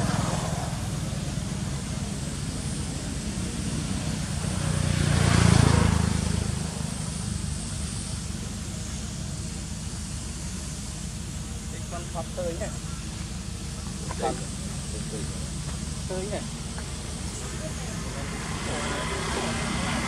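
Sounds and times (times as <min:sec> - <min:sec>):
passing engine drone: 0:00.0 - 0:20.0.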